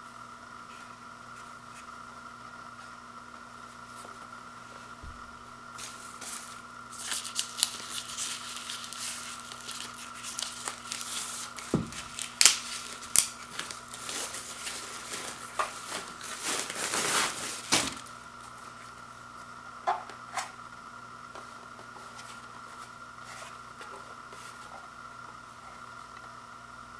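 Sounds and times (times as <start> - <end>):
plastic wrapping crinkling: 5.8 - 18.6.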